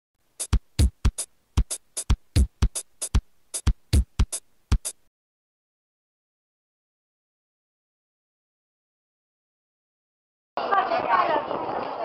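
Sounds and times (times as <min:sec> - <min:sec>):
electronic drum-machine beat: 0:00.3 - 0:05.1.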